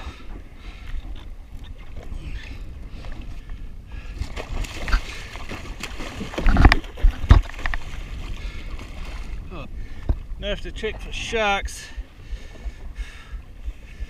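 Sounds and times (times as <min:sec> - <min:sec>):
fish thrashing in water: 0:03.9 - 0:09.5.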